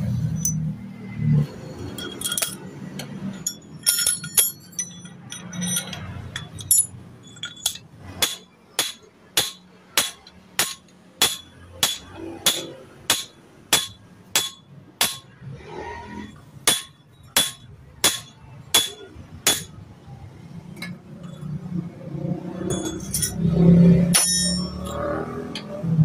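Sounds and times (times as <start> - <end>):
metal parts and tools clinking: 0.1 - 25.8
metallic clatter: 1.4 - 15.4, 20.8 - 21.8, 22.4 - 25.8
hammer striking metal: 1.8 - 15.7, 16.6 - 19.8, 22.4 - 25.8.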